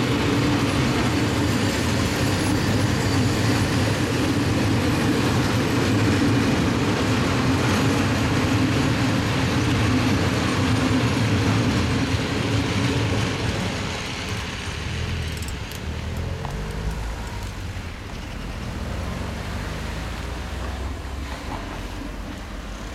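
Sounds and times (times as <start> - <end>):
freight train wheels rumbling: 0.0 - 22.9
car engines running: 12.0 - 22.9.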